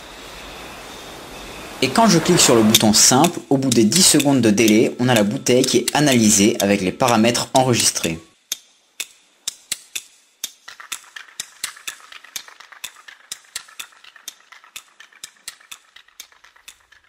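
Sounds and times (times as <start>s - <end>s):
faint steady hum: 0.0s - 10.5s
rapid regular clicking: 2.4s - 17.0s.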